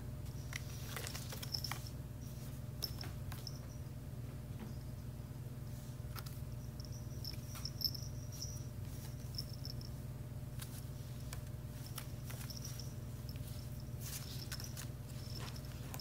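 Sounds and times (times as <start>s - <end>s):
steady low hum: 0.0s - 16.0s
faint high ringing: 1.1s - 10.9s, 11.7s - 16.0s
kitten scratching in basket: 10.6s - 16.0s.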